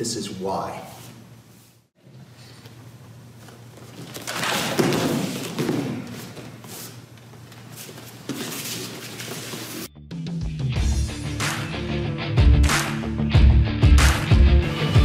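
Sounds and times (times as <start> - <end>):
bare feet thudding on mats: 3.8 - 9.8.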